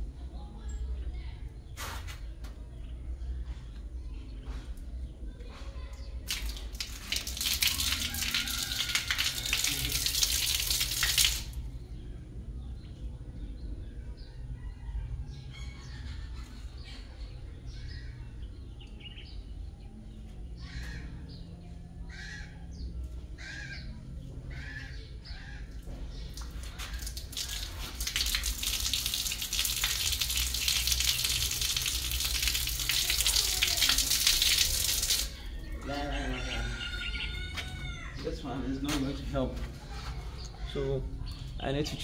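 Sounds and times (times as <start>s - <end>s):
water splashing and pouring: 6.3s - 11.6s, 26.2s - 35.4s.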